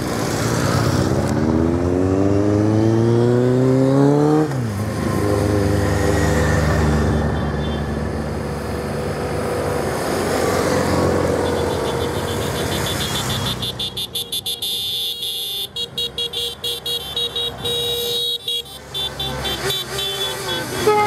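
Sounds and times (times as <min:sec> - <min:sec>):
motorcycle engines passing: 0:00.0 - 0:21.0
horns tooting: 0:11.3 - 0:21.0.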